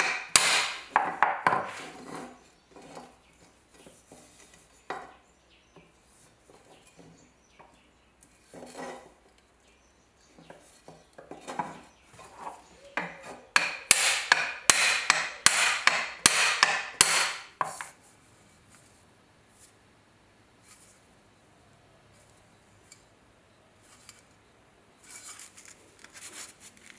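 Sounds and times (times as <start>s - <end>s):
hammer tapping on wooden dowel: 0.0s - 1.7s, 13.0s - 17.9s.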